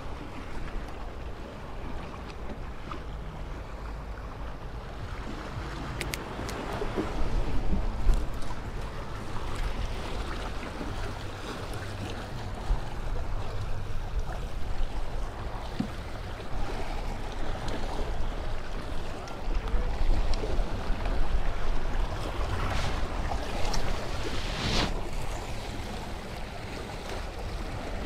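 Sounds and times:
wind buffeting microphone: 0:04.2 - 0:28.0
small waves washing against rocks: 0:21.4 - 0:28.0.

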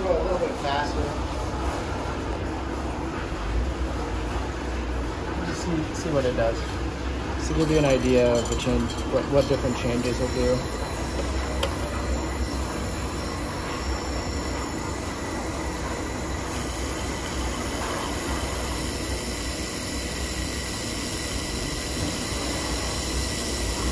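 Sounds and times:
laser welder hum and hiss: 0:07.4 - 0:23.9.

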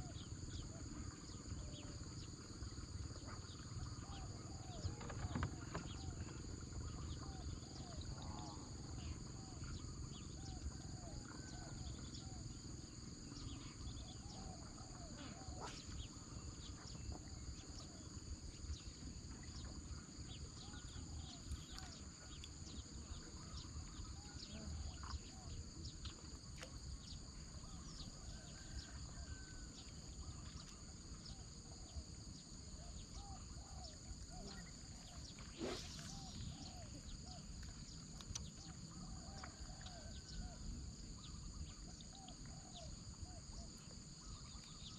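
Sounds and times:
insects trilling: 0:00.0 - 0:44.9
short arching insect chirps: 0:35.5 - 0:36.8.

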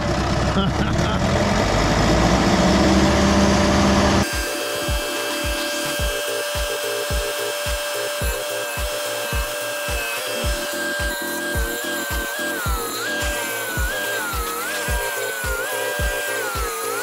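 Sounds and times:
diesel engine running loudly: 0:00.0 - 0:17.0
music with steady drum beat: 0:04.2 - 0:16.9.

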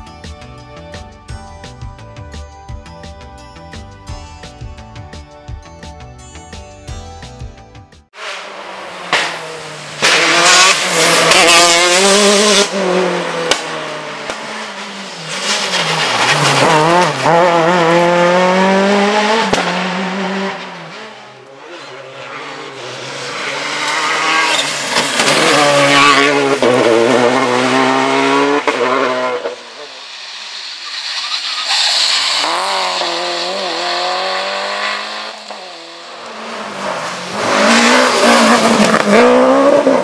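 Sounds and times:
rally cars passing at speed: 0:08.2 - 0:40.0.

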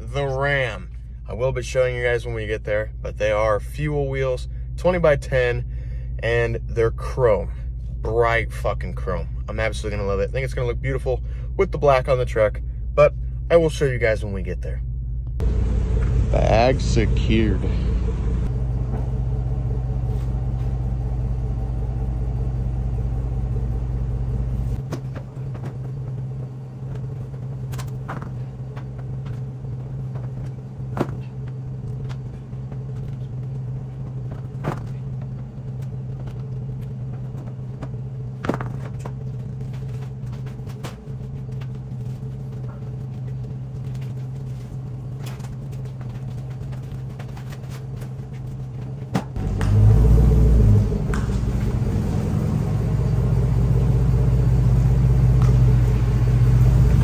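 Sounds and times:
deep low rumble: 0:00.0 - 0:57.0
vehicle engine drone: 0:00.0 - 0:57.0
road noise: 0:15.4 - 0:57.0.

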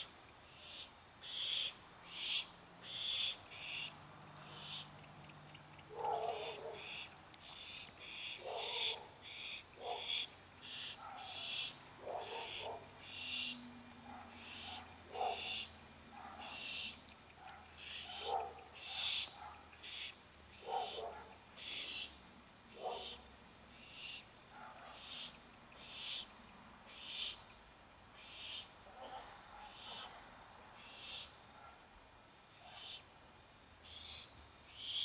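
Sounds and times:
owl chicks hissing begging calls: 0:00.0 - 0:05.0, 0:06.2 - 0:13.6, 0:14.3 - 0:15.8, 0:16.4 - 0:24.3, 0:24.9 - 0:26.3, 0:26.9 - 0:27.5, 0:28.1 - 0:28.8, 0:29.7 - 0:30.2, 0:30.8 - 0:31.4, 0:32.5 - 0:33.1, 0:33.8 - 0:35.0.

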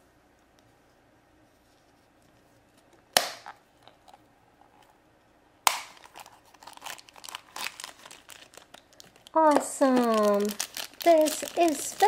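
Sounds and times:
plastic egg snapping open: 0:03.1 - 0:04.2, 0:05.6 - 0:11.6
shrink-wrap crackling: 0:05.8 - 0:12.0.

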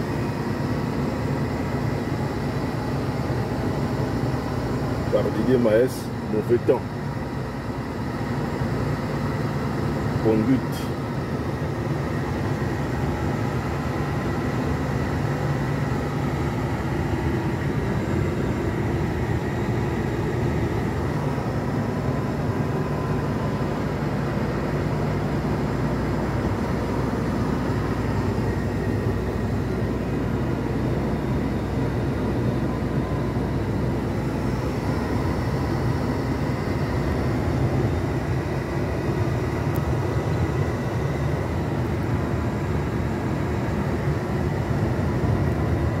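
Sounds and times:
faint steady whine: 0:00.0 - 0:46.0
road noise: 0:00.0 - 0:46.0
truck diesel engine rumble: 0:00.0 - 0:46.0.

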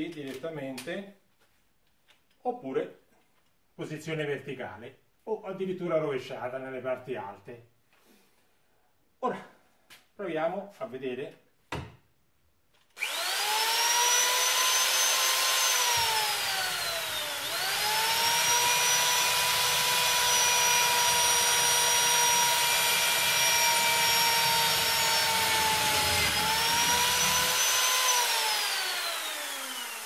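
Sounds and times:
drill bit grinding metal: 0:13.0 - 0:30.0
electric drill motor whine: 0:13.0 - 0:30.0.

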